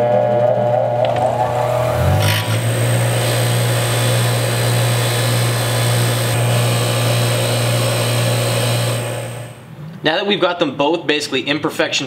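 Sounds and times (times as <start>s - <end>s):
bench grinder humming: 0.5s - 9.7s.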